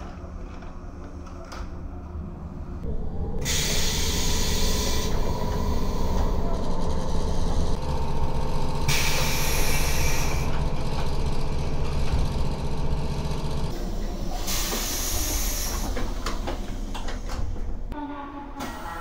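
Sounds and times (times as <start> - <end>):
idling train rumble: 0.0 - 19.0
pneumatic door air hiss: 3.4 - 6.2, 8.9 - 10.5, 14.4 - 16.0.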